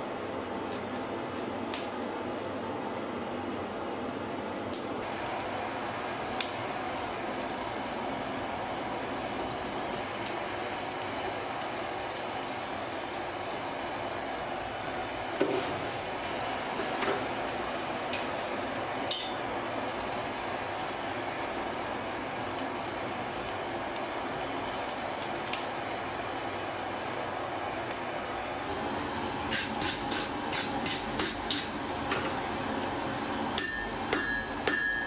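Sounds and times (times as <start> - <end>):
coal forge fire rushing: 0.0 - 35.0.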